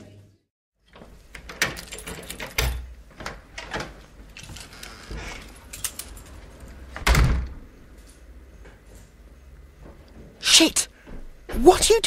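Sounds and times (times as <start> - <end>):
door shutting with heavy thud: 7.0 - 7.6.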